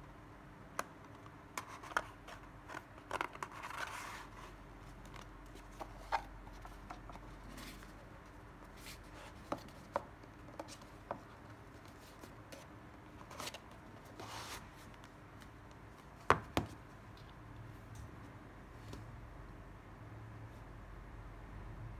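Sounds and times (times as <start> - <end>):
sketchbook pages rustling: 1.1 - 17.3.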